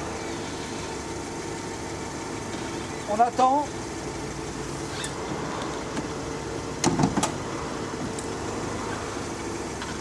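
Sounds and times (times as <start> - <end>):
car engine idling: 0.0 - 10.0
roof frame clunks: 6.8 - 7.4.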